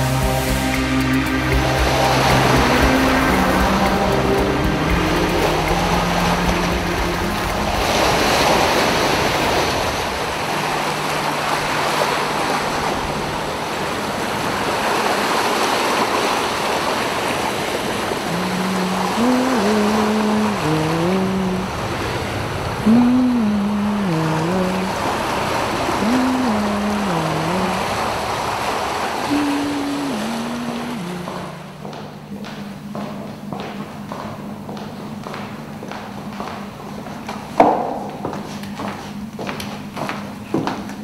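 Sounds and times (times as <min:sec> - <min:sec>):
sea surf washing onto shore: 0:00.0 - 0:31.9
low sliding melody: 0:00.0 - 0:40.5.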